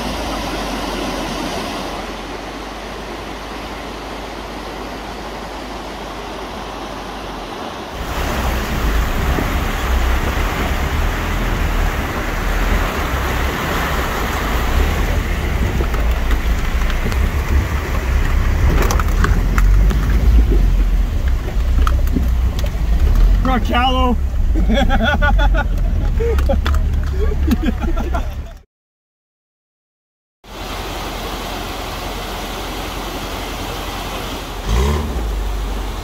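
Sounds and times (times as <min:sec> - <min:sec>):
rushing creek water: 0:00.0 - 0:28.6, 0:30.4 - 0:36.0
truck engine rumbling: 0:00.0 - 0:28.6.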